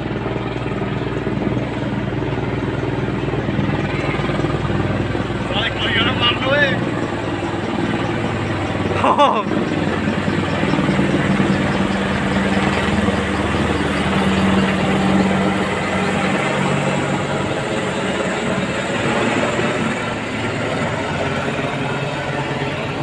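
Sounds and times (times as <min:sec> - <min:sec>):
low hum: 0:00.0 - 0:17.7
helicopter rotor and turbine drone: 0:00.0 - 0:23.0.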